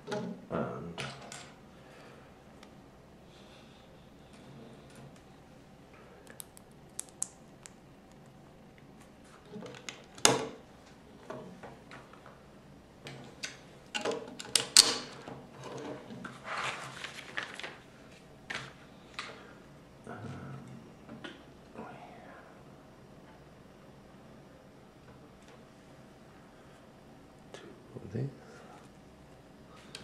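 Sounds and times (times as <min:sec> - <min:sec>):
scraping and rustling: 0:15.5 - 0:18.8.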